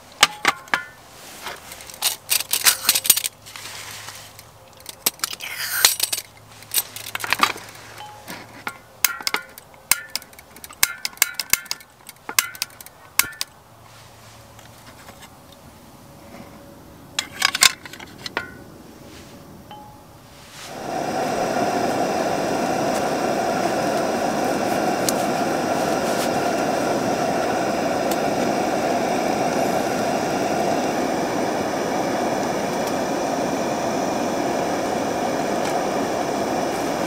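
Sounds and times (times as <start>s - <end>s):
metal clicks of camping stove: 0.0s - 1.0s, 1.7s - 3.4s, 4.3s - 13.6s, 17.2s - 18.6s, 25.0s - 26.7s, 28.0s - 28.6s, 32.4s - 33.1s.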